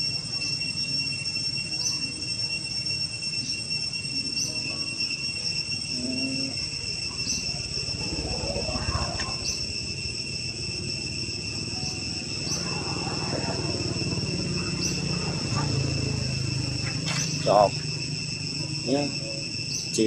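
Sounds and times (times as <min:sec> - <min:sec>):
insects droning: 0:00.0 - 0:20.0
short insect chirp: 0:00.0 - 0:20.0
low background rumble: 0:06.6 - 0:18.8.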